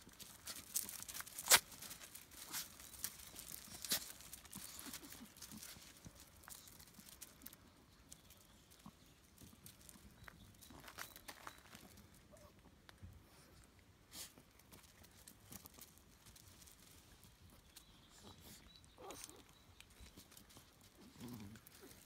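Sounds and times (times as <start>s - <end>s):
dogs crunching kibble: 0.0s - 12.4s, 14.1s - 22.0s.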